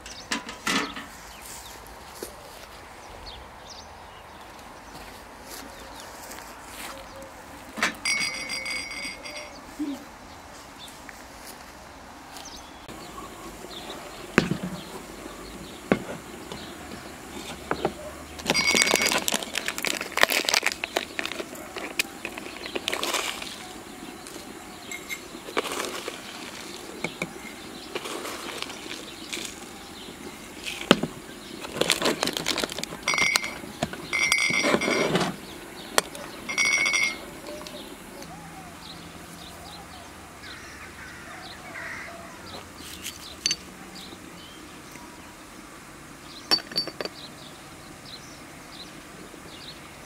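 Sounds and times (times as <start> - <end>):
metal tins tapping and clinking: 7.8 - 9.6, 17.7 - 23.6, 31.7 - 35.3, 36.0 - 37.7, 43.1 - 43.6, 46.5 - 47.2.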